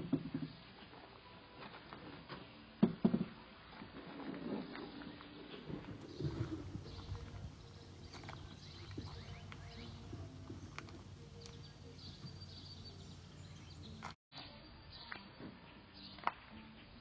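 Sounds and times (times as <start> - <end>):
high bird chirps: 6.1 - 14.1.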